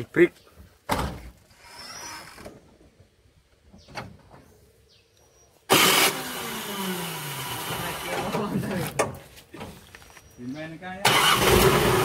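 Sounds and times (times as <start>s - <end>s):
truck exhaust revving down: 5.7s - 8.1s, 11.1s - 12.0s.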